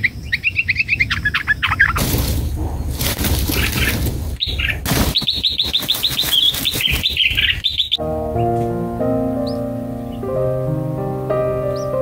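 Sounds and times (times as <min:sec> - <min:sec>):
bird chirping: 0:00.0 - 0:08.7, 0:09.3 - 0:10.5, 0:11.6 - 0:12.0
rustling in foliage: 0:01.6 - 0:08.0
piano music: 0:08.0 - 0:12.0.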